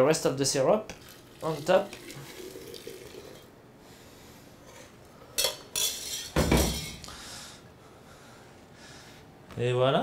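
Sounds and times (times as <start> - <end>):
metal kitchenware clinking: 5.4 - 7.0.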